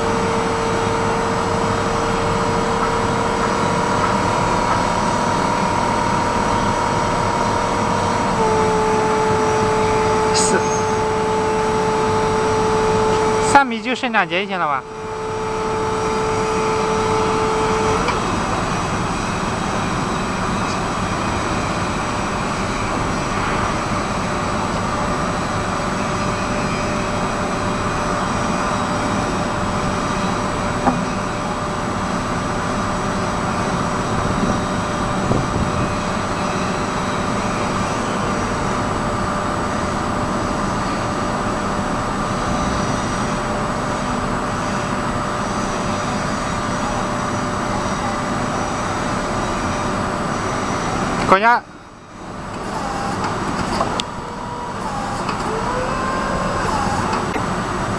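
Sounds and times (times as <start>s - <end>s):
steady tone: 0.0s - 20.2s
forklift motor whine and hiss: 0.0s - 57.9s.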